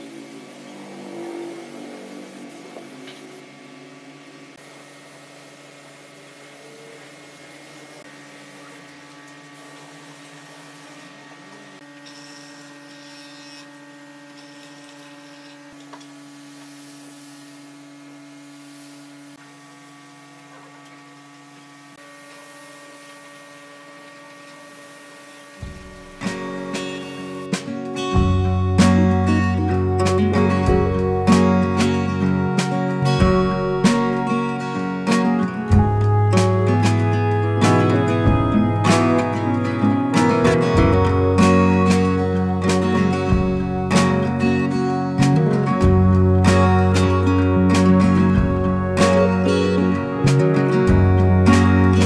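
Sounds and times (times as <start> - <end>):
spray gun hissing: 0.0 - 3.4, 16.3 - 17.8, 18.4 - 20.0
steady hum with held tones: 0.0 - 52.0.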